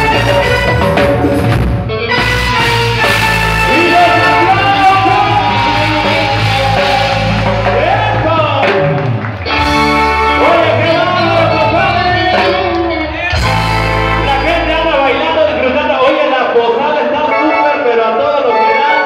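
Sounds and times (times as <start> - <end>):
live band music: 0.0 - 19.0
person singing: 9.9 - 15.3.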